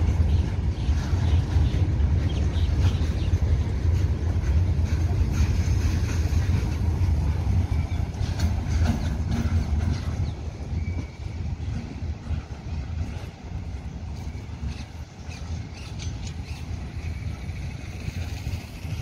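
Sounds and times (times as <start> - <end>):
freight train wheels rumbling: 0.0 - 19.0.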